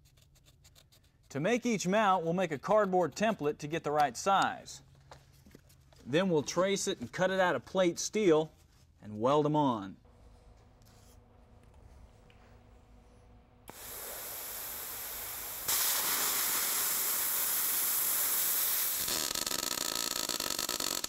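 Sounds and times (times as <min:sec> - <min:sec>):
plasma cutter hissing: 0:13.7 - 0:19.3
arc welding crackle: 0:13.7 - 0:21.0.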